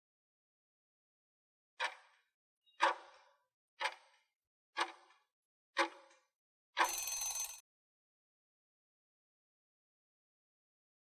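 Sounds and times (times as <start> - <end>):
clock ticks: 1.8 - 7.1.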